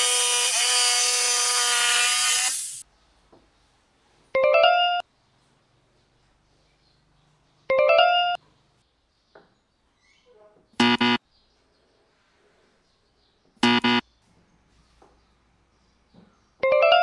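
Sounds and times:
wrong answer buzzer: 10.8 - 11.2, 13.6 - 14.0.

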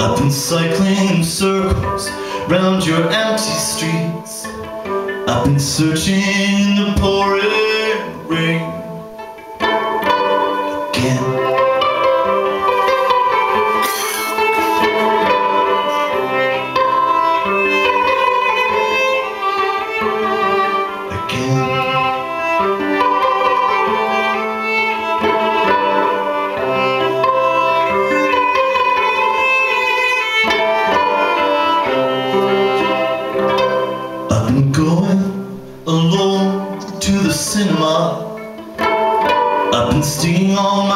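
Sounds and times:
violin melody: 0.0 - 40.9.

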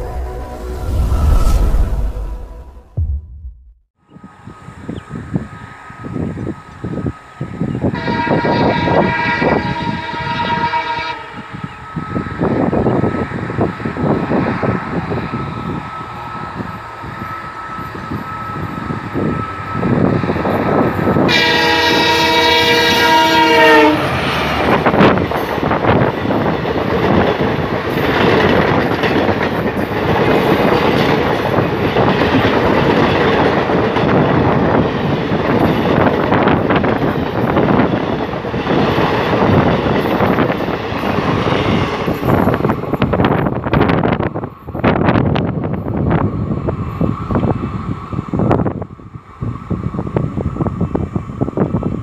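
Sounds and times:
diesel locomotive engine: 0.0 - 3.5, 4.1 - 52.0
locomotive horn: 7.9 - 12.8, 21.2 - 24.3
train wheels clickety-clack: 24.2 - 47.6.

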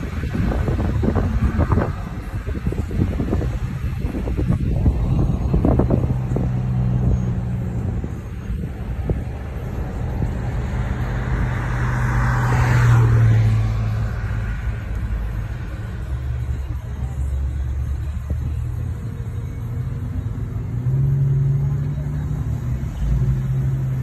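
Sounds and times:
wind noise: 0.0 - 10.5
car engine droning: 0.0 - 24.0.

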